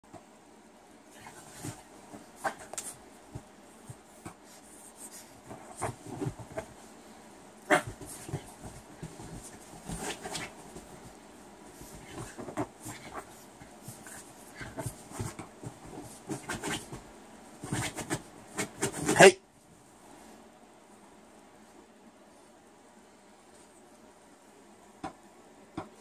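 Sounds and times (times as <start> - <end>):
paws scrabbling on fabric: 1.1 - 7.0, 7.7 - 19.3.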